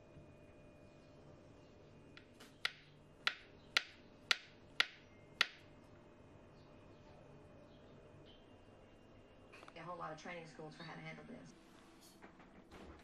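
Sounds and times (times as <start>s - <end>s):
knife tapping cutting board: 2.2s - 5.6s.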